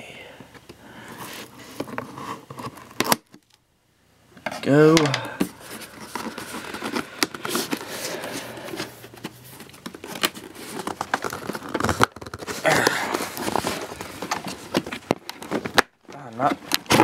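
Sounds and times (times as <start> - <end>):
cardboard box crinkling and rustling: 1.2 - 3.4, 5.4 - 17.0
packing tape tearing: 1.2 - 3.6, 5.6 - 17.0.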